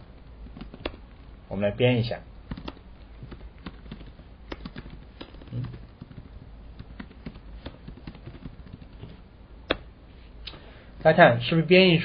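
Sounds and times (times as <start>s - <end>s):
keyboard typing: 0.4s - 1.3s, 2.4s - 9.9s.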